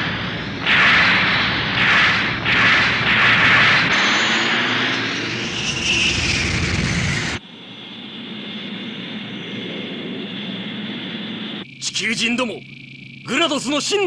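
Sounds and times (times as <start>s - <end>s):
beam cannon blasts: 0.0s - 7.4s
jet engine rush with whine: 0.0s - 11.7s.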